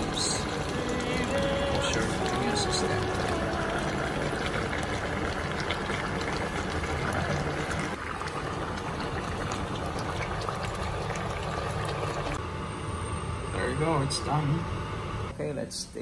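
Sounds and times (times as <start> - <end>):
soup bubbling in a pot: 0.0 - 12.4.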